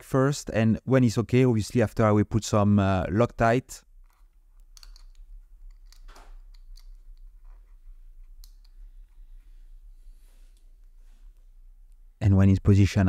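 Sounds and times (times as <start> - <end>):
watch crown clicks and scrapes: 4.0 - 9.6.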